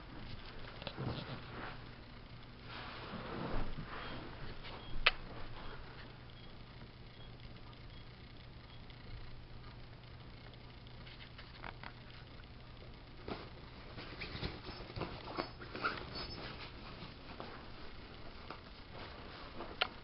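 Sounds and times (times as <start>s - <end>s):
low steady hum: 0.0s - 20.0s
cat rustling and tapping on carpet: 13.2s - 20.0s.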